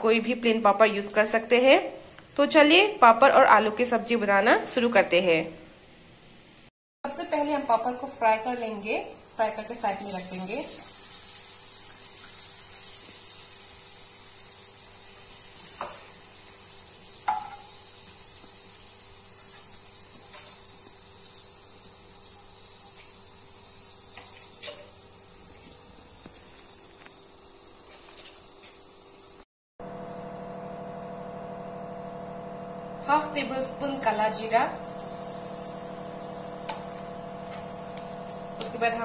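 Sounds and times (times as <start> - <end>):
frying in hot oil sizzle: 7.5 - 27.7, 33.6 - 39.0
metal utensil knocking on pan: 17.3 - 17.7.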